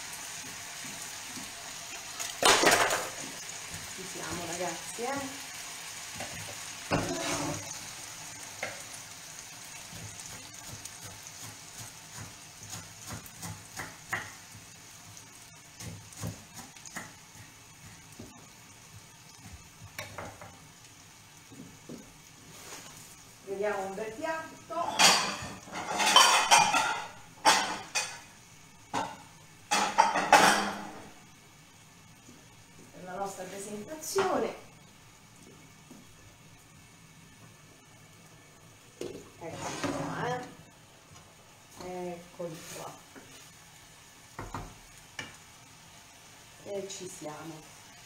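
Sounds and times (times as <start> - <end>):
food sizzling in a frying pan: 0.0 - 48.0
crockery and utensils clattering: 24.9 - 28.2.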